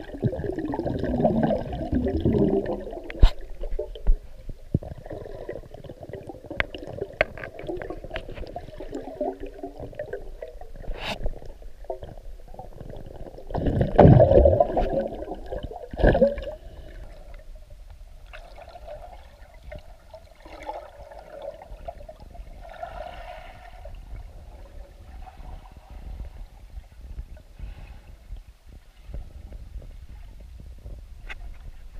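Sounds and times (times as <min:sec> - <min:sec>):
underwater sloshing and gurgling: 0:00.0 - 0:31.9
light clicks underwater: 0:03.0 - 0:04.9.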